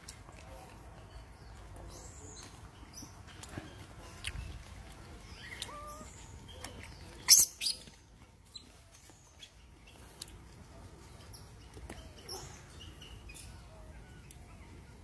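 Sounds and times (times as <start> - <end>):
monkeys squeaking and chirping: 5.3 - 8.7.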